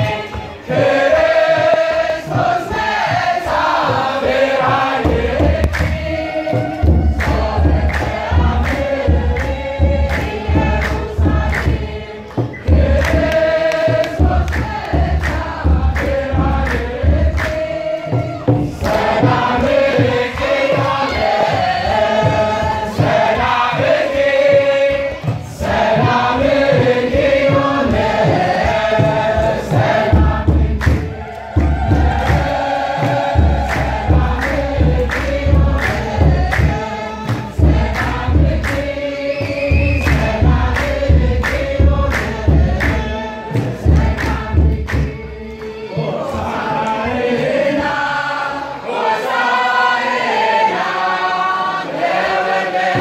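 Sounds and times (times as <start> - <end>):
choir singing a hymn: 0.0 - 53.0
hand clapping: 5.4 - 21.4, 30.2 - 45.8
deep low beat: 25.0 - 45.4.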